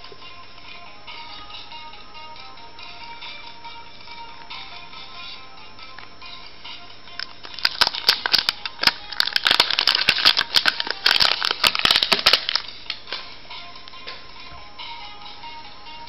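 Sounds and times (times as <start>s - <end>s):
plastic sleeve crinkling: 7.2s - 13.2s.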